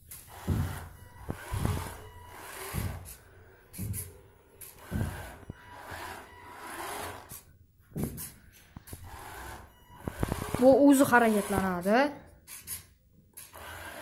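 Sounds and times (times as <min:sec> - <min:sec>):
small motors whining: 0:00.0 - 0:03.8, 0:04.5 - 0:07.4, 0:08.9 - 0:11.9
soft thumps: 0:07.8 - 0:09.0.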